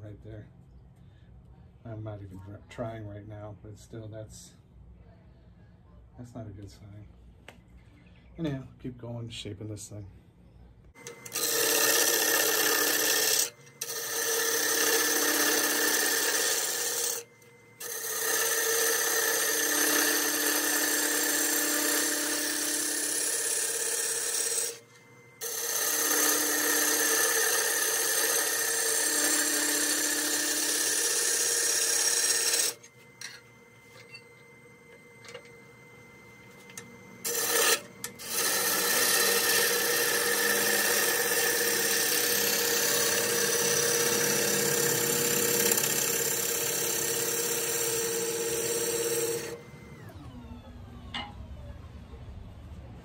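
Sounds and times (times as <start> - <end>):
lathe tool cutting wood: 11.0 - 32.9, 36.6 - 50.2.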